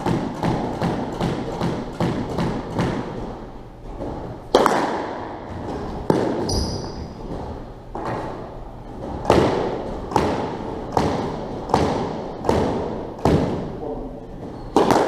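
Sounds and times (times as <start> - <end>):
hard squash ball strikes: 0.0 - 3.3, 4.0 - 13.8, 14.4 - 15.0
squash ball bouncing: 0.0 - 15.0
shoe squeak: 6.5 - 7.2, 14.5 - 14.9.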